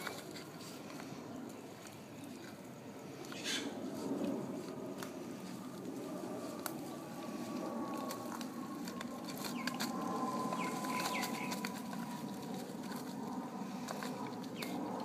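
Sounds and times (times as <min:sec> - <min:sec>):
bird calls: 0:03.3 - 0:03.8, 0:09.2 - 0:12.3, 0:14.5 - 0:14.8
dog tearing foil paper hat: 0:07.4 - 0:15.0.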